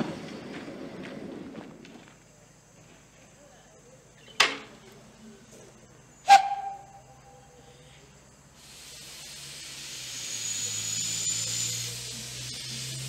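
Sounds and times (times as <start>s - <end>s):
steam hissing: 6.3s - 7.0s, 8.5s - 13.0s.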